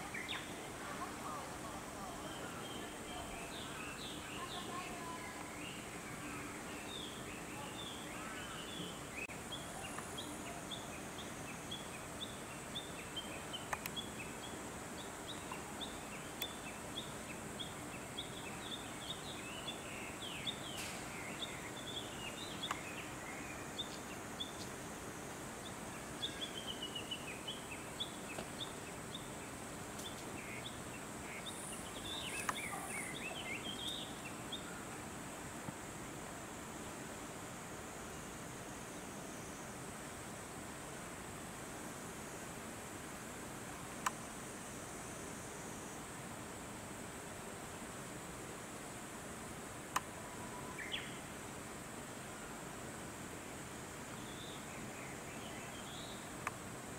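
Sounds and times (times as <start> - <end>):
small birds chirping: 0.0 - 24.9, 25.5 - 35.1.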